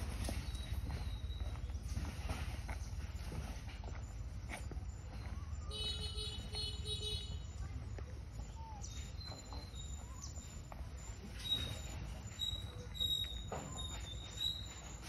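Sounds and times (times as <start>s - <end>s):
bird trill: 8.4s - 15.0s.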